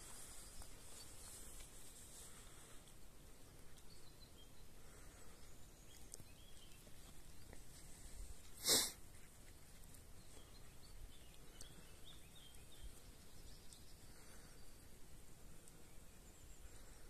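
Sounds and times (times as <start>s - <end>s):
faint bird chirps: 3.4s - 8.6s, 9.4s - 17.0s
person sneezing: 8.6s - 9.0s.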